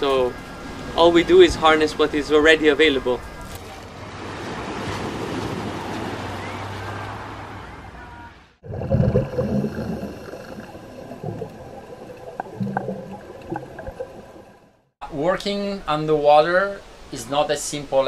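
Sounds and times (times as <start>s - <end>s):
underwater bubbling: 8.6s - 14.9s.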